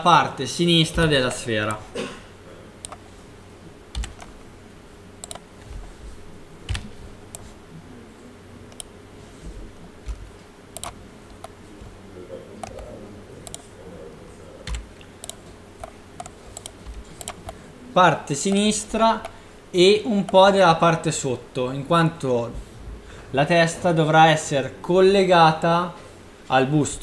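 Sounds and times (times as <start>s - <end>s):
faint steady hum: 0.0s - 27.0s
keyboard and mouse clicks: 2.8s - 3.0s, 3.9s - 4.4s, 5.2s - 5.8s, 6.7s - 7.5s, 10.0s - 11.6s, 12.6s - 13.7s, 14.7s - 17.6s.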